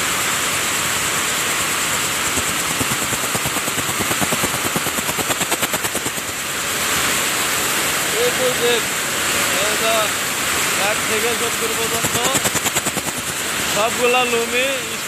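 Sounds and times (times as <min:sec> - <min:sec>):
weaving looms mechanical din: 0:01.6 - 0:06.4, 0:10.8 - 0:14.8.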